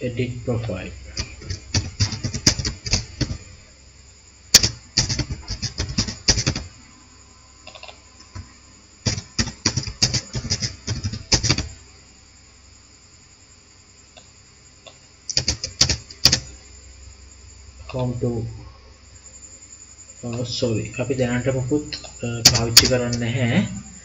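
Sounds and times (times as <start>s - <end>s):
computer keyboard keys clacking: 1.2s - 3.4s, 4.6s - 6.7s, 9.1s - 11.7s, 15.3s - 16.5s.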